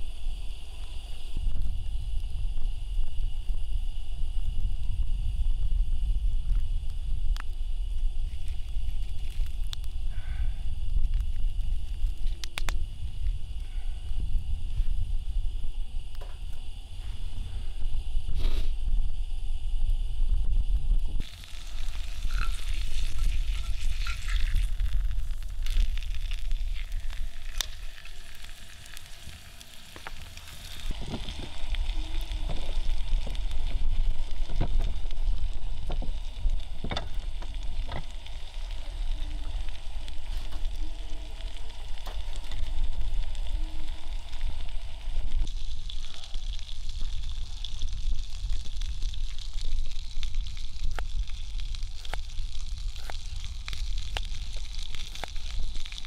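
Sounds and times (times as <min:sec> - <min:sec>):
fire crackles and pops: 0:00.0 - 0:56.0
low rumble: 0:00.0 - 0:56.0
wind buffeting microphone: 0:00.6 - 0:21.2
ribs sizzling on a grill: 0:21.2 - 0:56.0.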